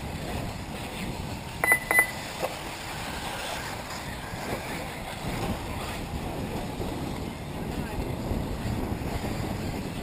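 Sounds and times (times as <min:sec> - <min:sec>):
wind-like background noise: 0:00.0 - 0:10.0
high electronic beeps: 0:01.6 - 0:02.2.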